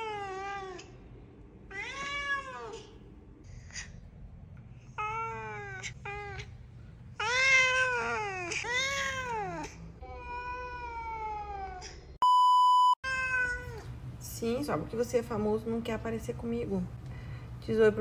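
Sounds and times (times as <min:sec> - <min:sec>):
cat meowing: 0:01.7 - 0:02.9, 0:13.0 - 0:13.9.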